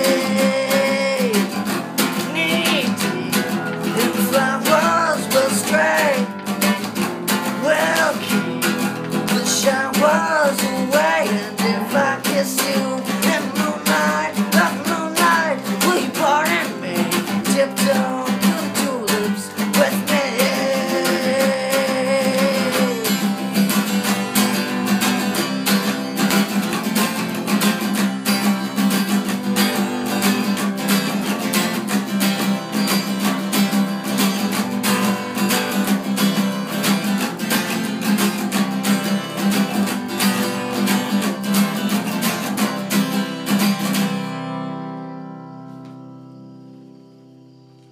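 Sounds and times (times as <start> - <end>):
acoustic guitar strumming: 0.0 - 47.9.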